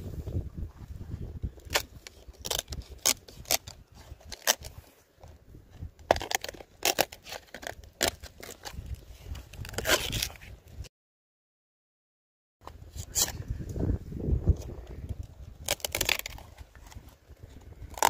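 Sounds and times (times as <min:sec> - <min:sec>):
knife cracking and scraping palm: 0:01.6 - 0:04.8, 0:06.0 - 0:10.6, 0:13.0 - 0:13.4, 0:14.6 - 0:18.0.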